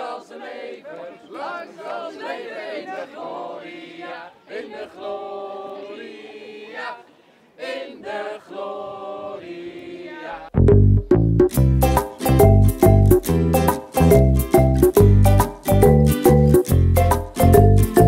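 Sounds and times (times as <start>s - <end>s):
group singing: 0.0s - 10.6s
upbeat music with heavy bass: 10.6s - 18.0s.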